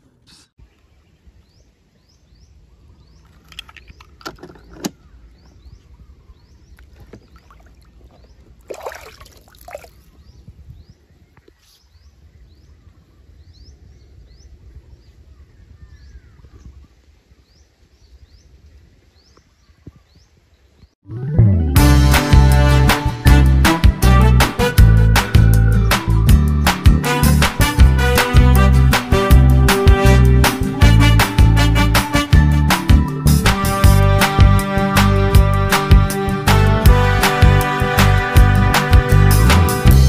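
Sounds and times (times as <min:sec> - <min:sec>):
bird chirping: 0:00.6 - 0:08.5.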